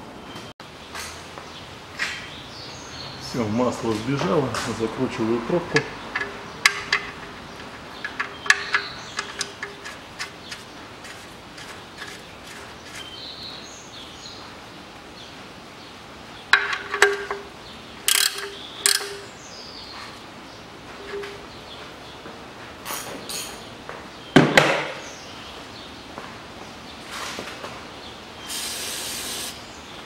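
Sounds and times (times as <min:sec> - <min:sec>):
wrench clicking: 0:05.8 - 0:10.6, 0:18.1 - 0:19.3
metallic clicks of tools: 0:18.1 - 0:19.3.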